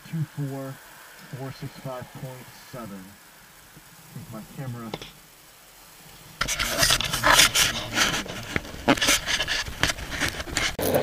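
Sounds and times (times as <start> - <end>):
camera case rubbing and scraping: 6.4 - 11.0.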